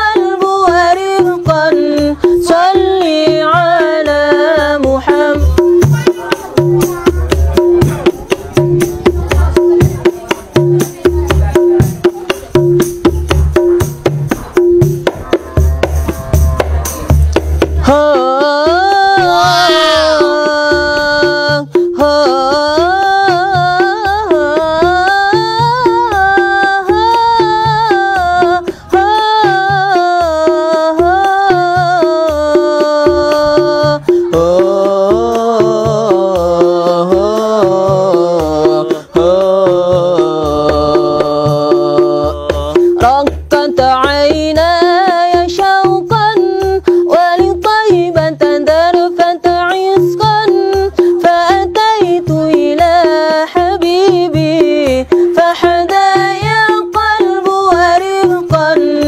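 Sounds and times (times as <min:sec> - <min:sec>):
low repeating beat: 0:00.0 - 0:47.8
hand percussion rhythm: 0:00.0 - 0:59.0
person singing: 0:14.5 - 0:59.0.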